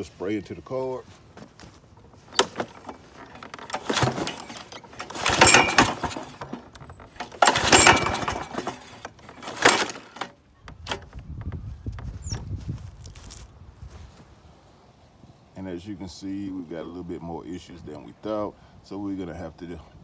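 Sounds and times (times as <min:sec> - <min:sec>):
engine trying to pop: 0:01.4 - 0:12.7
recoil starter whir: 0:02.2 - 0:11.2.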